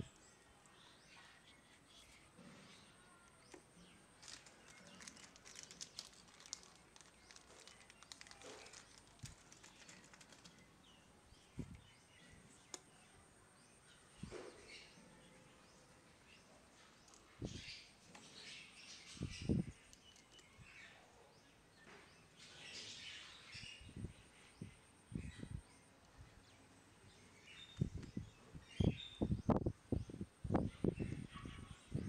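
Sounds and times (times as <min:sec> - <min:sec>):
clicks and rustles of plastic parts: 0:03.3 - 0:10.8, 0:16.8 - 0:17.3, 0:19.7 - 0:20.6.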